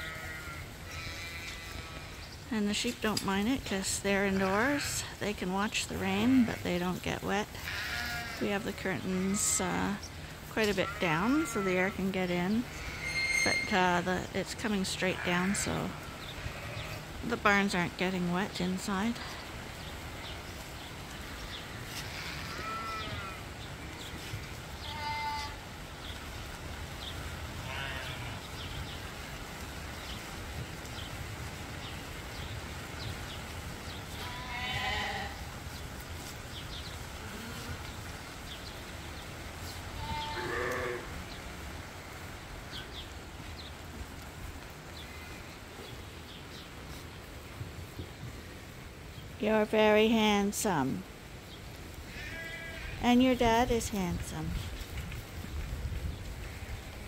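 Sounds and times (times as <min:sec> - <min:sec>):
sheep and lambs bleating: 0:00.0 - 0:02.4, 0:04.3 - 0:05.2, 0:06.0 - 0:17.2, 0:19.0 - 0:25.8, 0:27.6 - 0:29.0, 0:34.1 - 0:35.5, 0:37.2 - 0:38.0, 0:39.6 - 0:41.2, 0:52.0 - 0:53.2
low background noise: 0:00.0 - 0:57.0.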